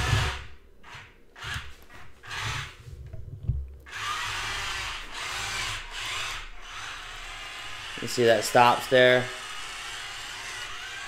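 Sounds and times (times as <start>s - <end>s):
electric motors whining: 0.0s - 2.9s, 3.9s - 11.0s.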